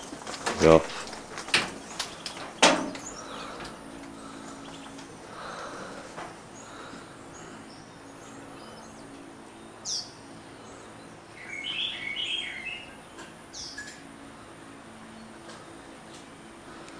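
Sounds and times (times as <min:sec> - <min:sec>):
loud bird chattering: 0:11.4 - 0:12.9.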